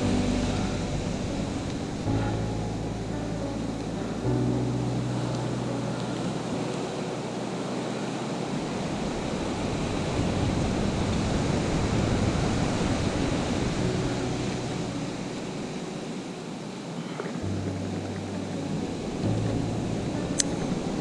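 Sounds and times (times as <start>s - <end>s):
surf washing over rocks: 0.0s - 21.0s.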